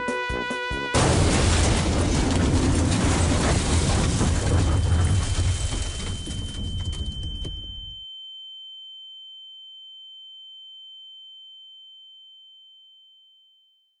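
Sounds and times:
high-pitched ringing tone: 4.9s - 14.0s.

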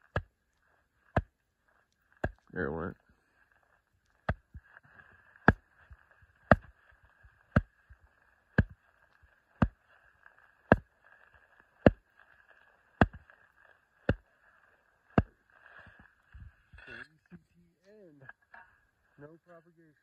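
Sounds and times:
hand tapping shovel blade: 13.0s - 13.2s.

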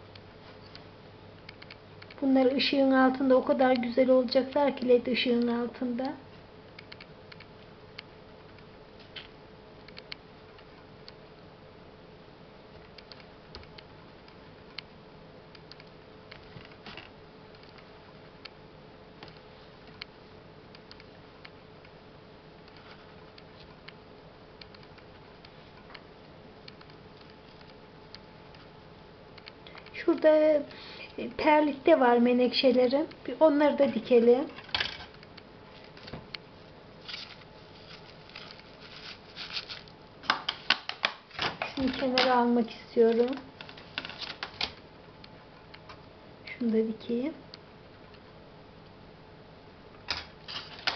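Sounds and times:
faint steady hum: 0.0s - 50.9s
fingers rustling in perlite: 37.0s - 40.0s.

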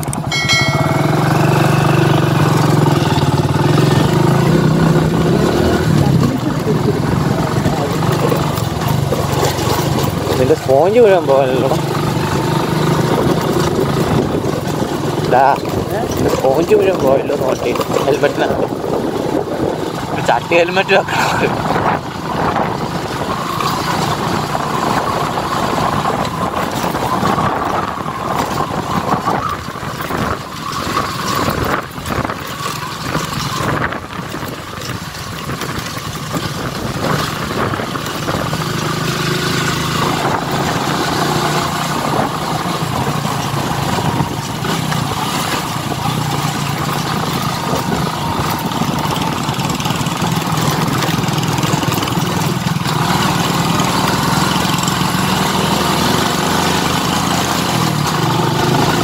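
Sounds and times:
motorcycle engine running: 0.0s - 59.0s.

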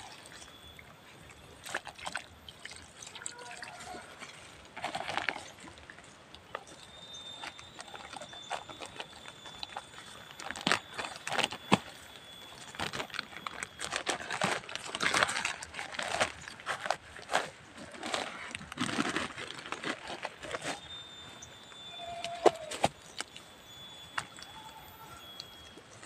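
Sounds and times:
hands rustling soil and plastic bag: 0.0s - 26.0s
thin steady high tone: 6.6s - 14.6s, 20.6s - 26.0s.

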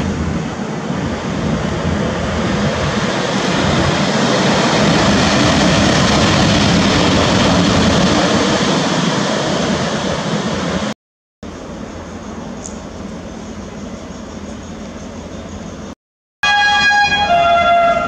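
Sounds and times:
electric locomotive passing: 0.0s - 10.9s.

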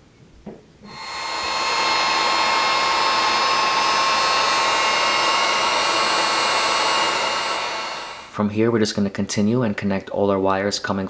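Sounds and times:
heat gun fan whining: 0.8s - 8.4s
rush of hot air: 0.9s - 8.4s.

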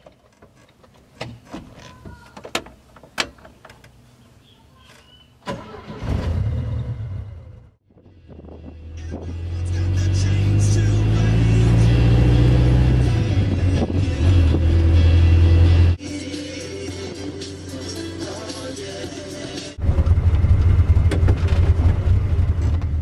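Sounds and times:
car engine running: 9.0s - 16.0s, 19.8s - 23.0s.

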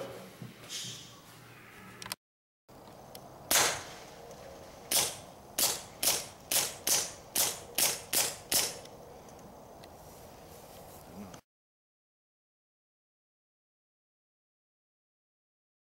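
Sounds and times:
suppressed pistol shots: 3.5s - 4.0s, 4.9s - 8.8s.

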